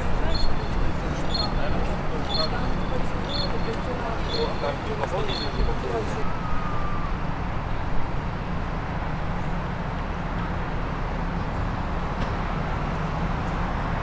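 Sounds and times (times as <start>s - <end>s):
city traffic rumble: 0.0s - 14.0s.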